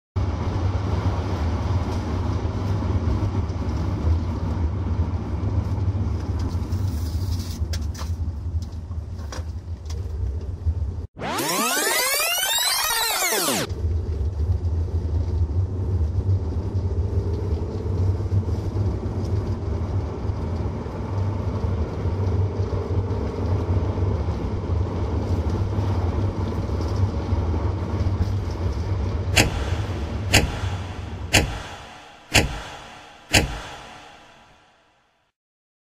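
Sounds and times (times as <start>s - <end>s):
sharp clicks: 29.4s - 34.6s.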